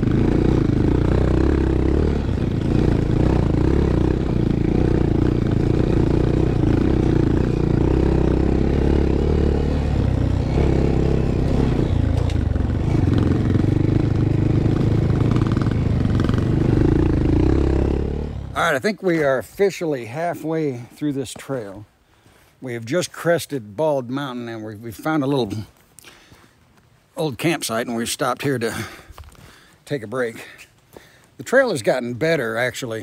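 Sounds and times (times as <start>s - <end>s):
small motorcycle engine under load: 0.0s - 18.8s.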